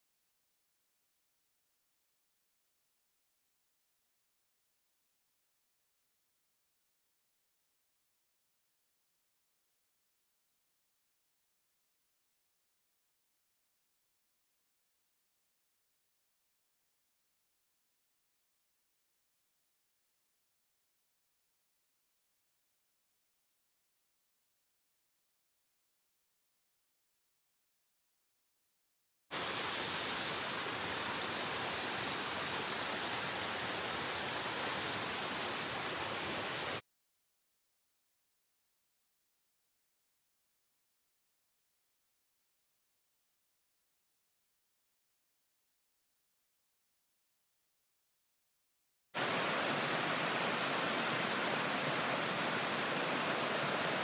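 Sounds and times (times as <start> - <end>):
creek water rushing over rock: 29.4 - 36.8, 49.2 - 54.0.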